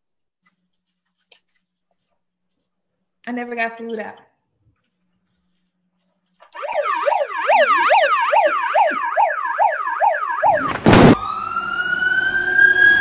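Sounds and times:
megaphone siren: 0:06.5 - 0:13.0
short loud siren blast: 0:06.6 - 0:13.0.

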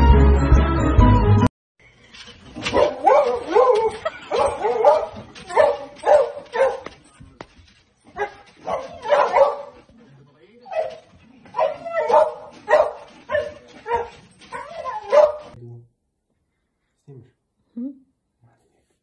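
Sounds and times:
music: 0:00.0 - 0:01.5
dog whining and yipping: 0:11.6 - 0:15.6.

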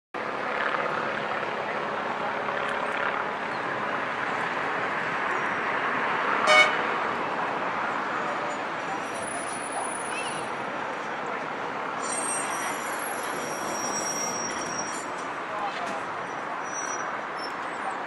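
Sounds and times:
outdoor street noise: 0:00.2 - 0:18.0
tram horn toot: 0:06.4 - 0:06.9.

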